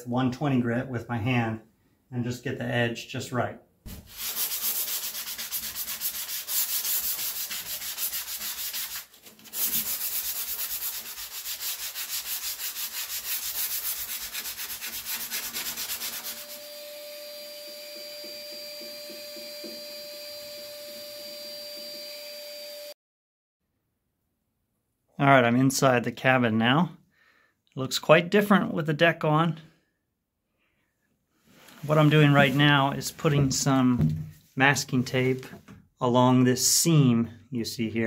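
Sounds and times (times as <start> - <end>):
sandpaper rubbing by hand: 3.9 - 16.7
vacuum running with thin whine: 16.5 - 22.9.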